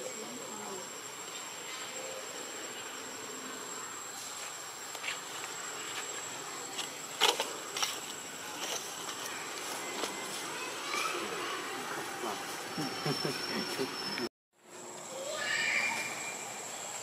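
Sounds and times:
insects whining: 0:00.0 - 0:17.0.

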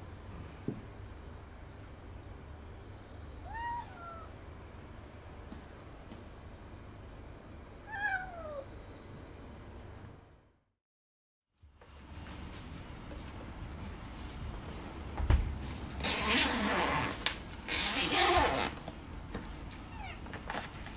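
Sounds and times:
cat meowing: 0:03.4 - 0:04.4, 0:07.8 - 0:08.7, 0:19.9 - 0:20.3.

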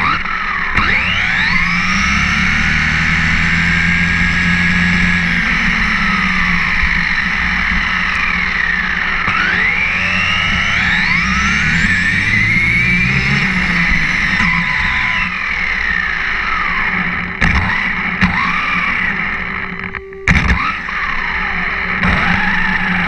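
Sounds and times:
rc truck motor whine: 0:00.0 - 0:23.0.

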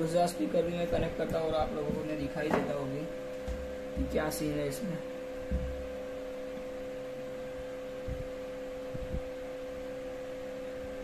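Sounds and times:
electrical hum through speaker: 0:00.0 - 0:11.0
low thumps from speaker: 0:00.8 - 0:04.4, 0:05.4 - 0:06.0, 0:08.0 - 0:09.3.

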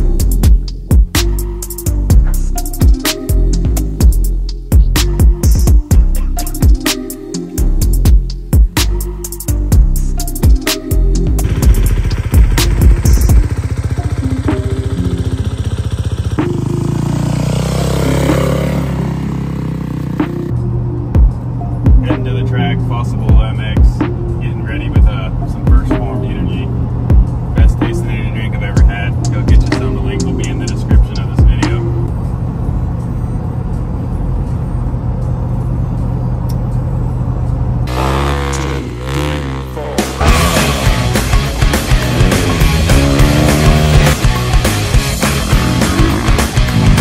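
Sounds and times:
loud music: 0:00.0 - 0:32.1, 0:37.9 - 0:47.0
vehicle engine and road drone: 0:00.0 - 0:47.0
dirt bike engine idling: 0:11.4 - 0:20.3, 0:37.9 - 0:47.0.

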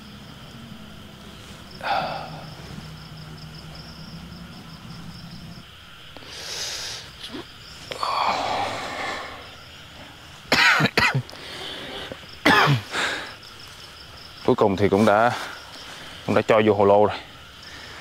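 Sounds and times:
breathy whooshing hisses: 0:00.2 - 0:05.6, 0:06.2 - 0:10.5, 0:11.3 - 0:13.8
hoarse coughing wheezing cries: 0:01.8 - 0:02.8, 0:10.5 - 0:11.6, 0:12.4 - 0:13.4.

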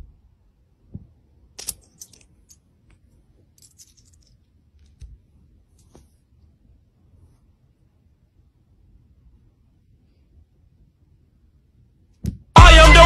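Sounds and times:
metal coins clinking: 0:01.6 - 0:02.7, 0:03.5 - 0:04.5.

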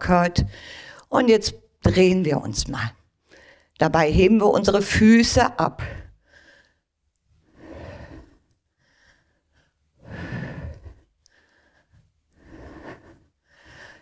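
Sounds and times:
person breathing: 0:00.5 - 0:01.1, 0:03.3 - 0:03.8, 0:05.8 - 0:14.0.

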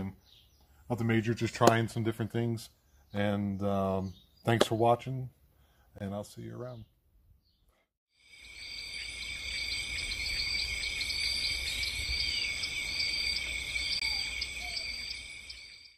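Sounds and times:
insects chirping: 0:08.2 - 0:15.9.

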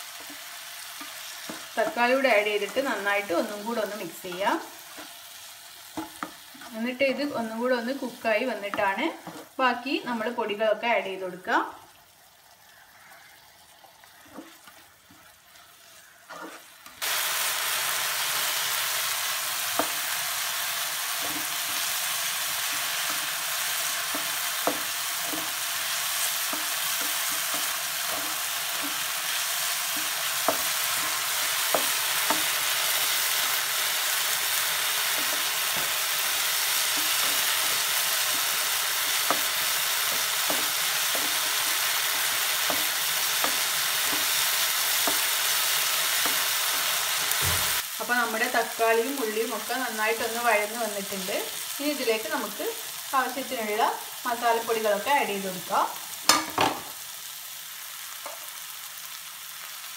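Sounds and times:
vegetables sizzling in frying pan: 0:00.0 - 0:59.9
spatula scraping pan: 0:14.2 - 0:17.0, 0:21.1 - 0:47.8.

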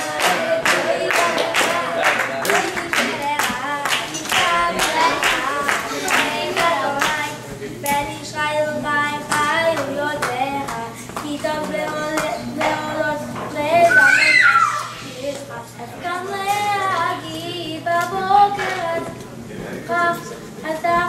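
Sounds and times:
audience clapping along: 0:00.0 - 0:08.0
boy singing: 0:00.0 - 0:21.0.

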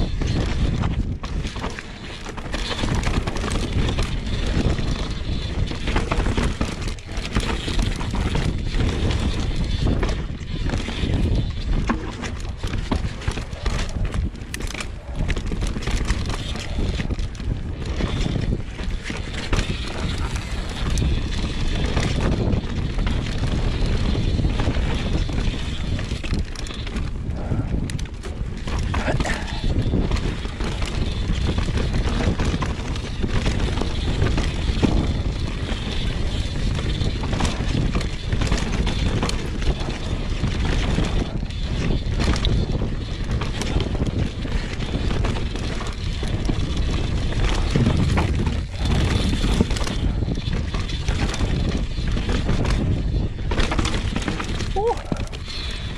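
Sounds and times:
bike rattling and knocking: 0:00.0 - 0:55.9
bike tyres rolling on dirt: 0:00.0 - 0:55.9
wind buffeting microphone: 0:00.0 - 0:55.9.

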